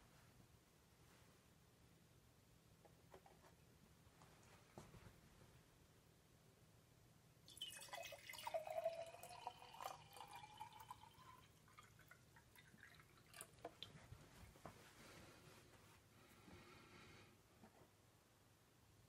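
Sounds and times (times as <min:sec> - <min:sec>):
water pouring into a glass jar: 0:07.5 - 0:13.9
water drips: 0:07.5 - 0:14.1.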